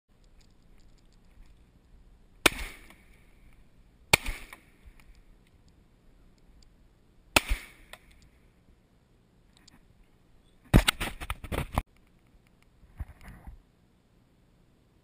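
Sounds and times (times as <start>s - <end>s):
shotgun shots with echo: 2.4s - 3.0s, 4.1s - 4.6s, 7.4s - 7.9s.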